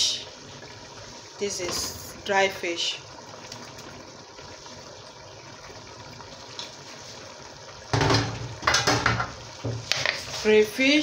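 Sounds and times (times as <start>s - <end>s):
stew simmering with hiss: 0.0s - 11.0s.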